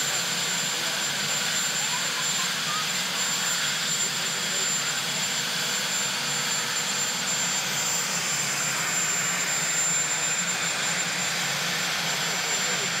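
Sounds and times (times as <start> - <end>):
helicopter turbine and rotor: 0.0 - 13.0.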